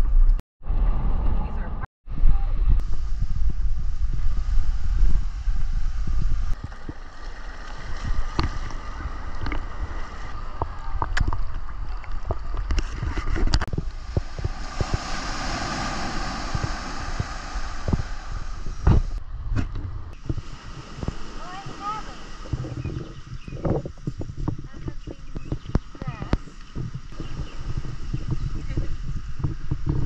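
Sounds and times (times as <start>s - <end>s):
wind rumbling on microphone: 0.0s - 30.0s
water splashing and lapping: 3.9s - 30.0s
wave washing up sand: 13.7s - 19.2s, 20.2s - 22.8s.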